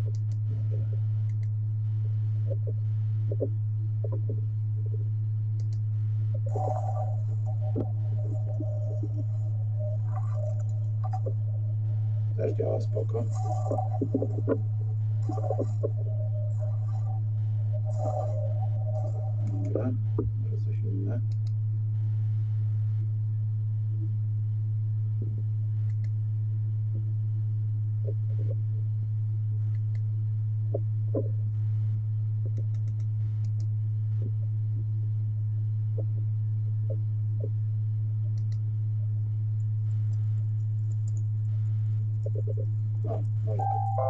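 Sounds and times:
projector humming: 5.5s - 21.2s, 42.1s - 44.0s
faint short clicks: 21.2s - 21.6s.

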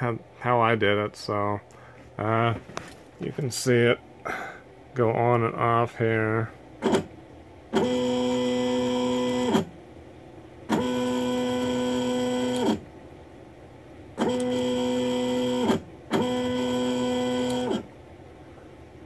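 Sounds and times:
stepper motor whine: 7.7s - 9.7s, 10.7s - 12.8s, 14.2s - 17.9s.

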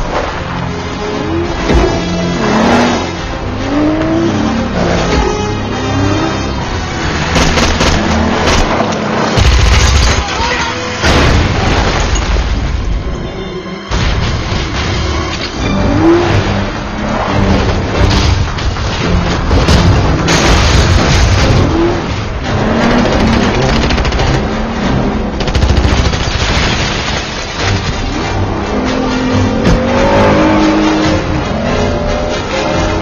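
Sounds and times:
car engines revving high: 0.4s - 9.6s, 15.5s - 26.2s, 27.5s - 33.0s
gunfire bursts: 7.3s - 8.7s.

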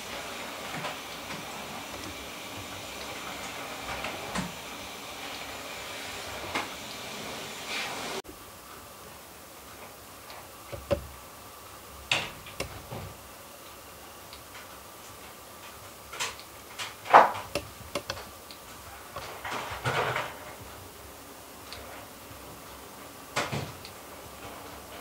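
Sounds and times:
low steady background noise: 0.0s - 25.0s
sharp clicks and knocks: 10.7s - 11.2s, 12.1s - 13.1s, 16.2s - 18.3s.

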